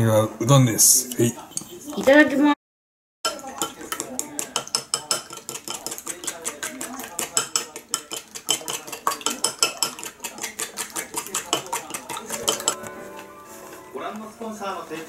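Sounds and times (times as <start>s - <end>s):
chopsticks clicking against bowl: 3.6s - 12.8s.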